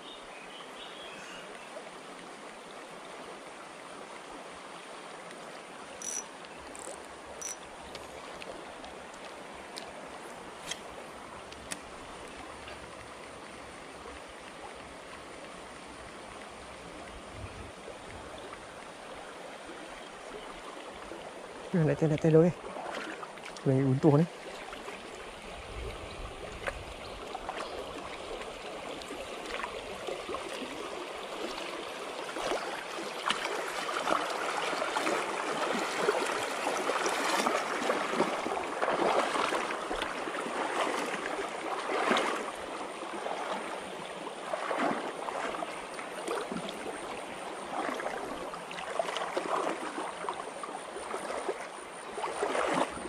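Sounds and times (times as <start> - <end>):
river running over stones: 0.0 - 53.0.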